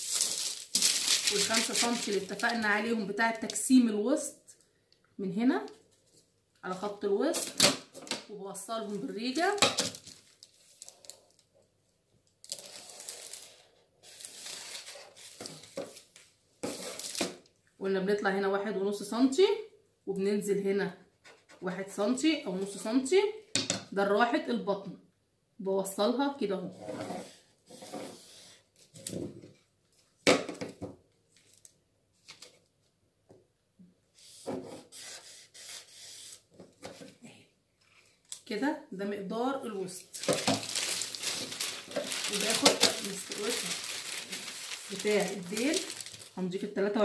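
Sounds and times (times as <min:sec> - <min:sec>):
marker rubbing on paper: 0:34.2 - 0:36.4.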